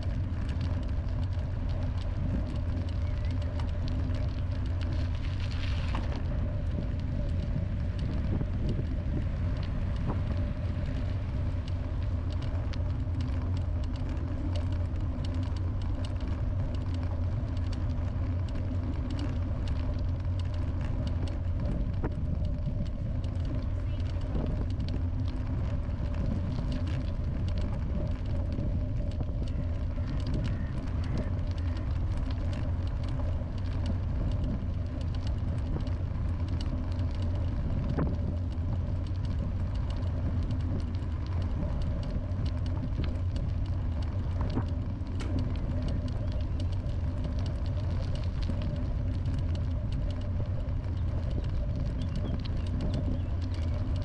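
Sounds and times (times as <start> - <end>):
small ticks and knocks: 0.0 - 54.0
vehicle motor humming: 0.0 - 54.0.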